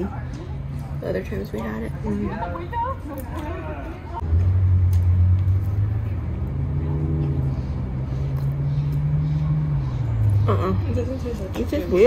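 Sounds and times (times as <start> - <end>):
vehicle engine running: 4.1 - 12.0.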